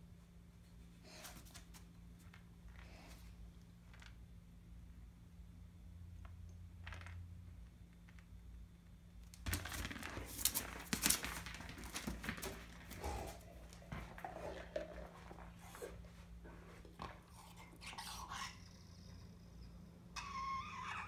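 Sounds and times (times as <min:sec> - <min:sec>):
puppy chewing plastic ball: 0:09.5 - 0:17.8.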